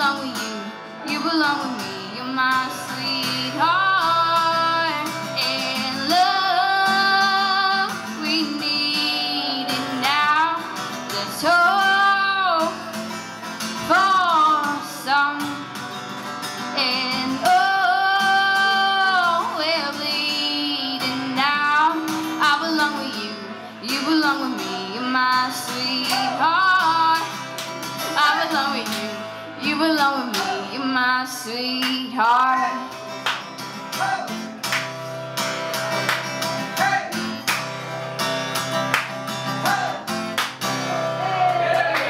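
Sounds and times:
woman singing: 0.0 - 13.0, 13.6 - 15.8, 16.5 - 33.0
strummed acoustic guitar: 0.0 - 42.0.

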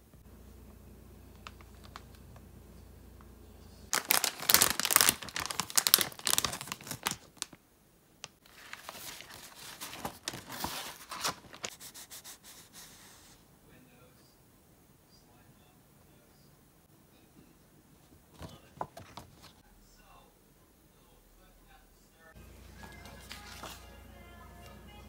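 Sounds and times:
plastic packaging crinkling: 1.3 - 2.2, 3.9 - 7.6, 8.3 - 11.8
rice paper sheet rustling: 3.9 - 7.6, 8.4 - 13.3, 22.6 - 23.9.

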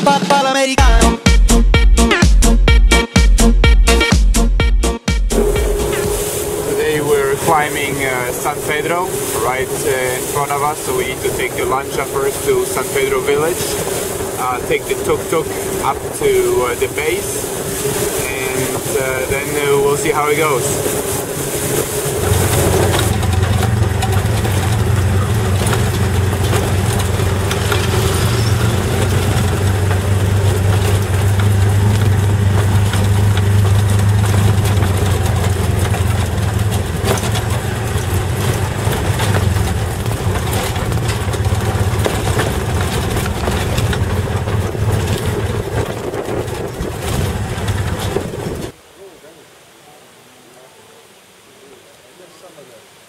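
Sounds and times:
auto rickshaw engine humming: 5.3 - 48.8
vehicle knocks and rattles: 10.7 - 48.8.

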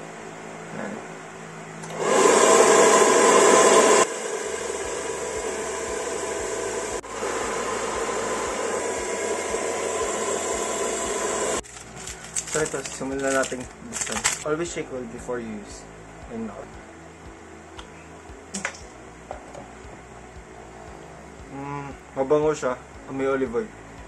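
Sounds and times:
hair dryer blowing: 1.9 - 14.4.

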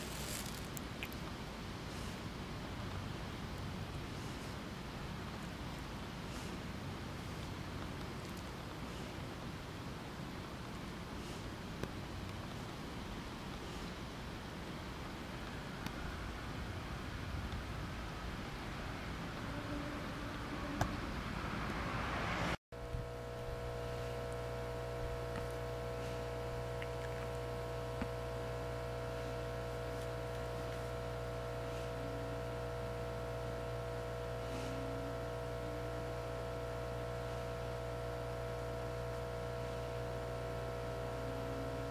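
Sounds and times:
hiss: 0.0 - 0.8
steady machine hum: 0.0 - 41.9.

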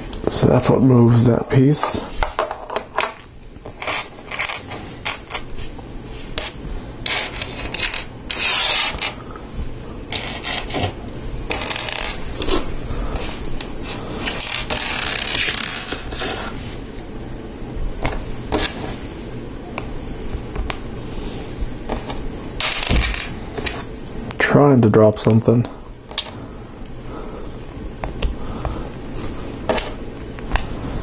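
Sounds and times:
plastic rubbing and scraping: 6.3 - 9.2, 10.1 - 16.7, 18.1 - 19.0.

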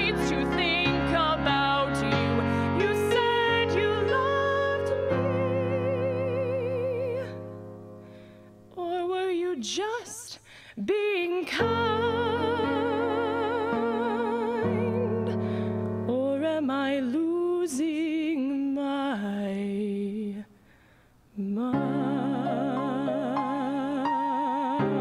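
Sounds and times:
woman singing a slow ballad: 0.0 - 7.6, 8.7 - 20.6, 21.4 - 25.0
keyboard chords: 0.0 - 8.3.

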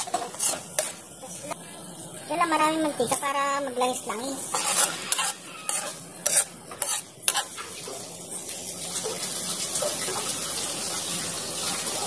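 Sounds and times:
metal spoon scraping pan: 0.0 - 1.0, 4.4 - 7.6
shrimp paste sizzling in oil: 0.0 - 12.0.

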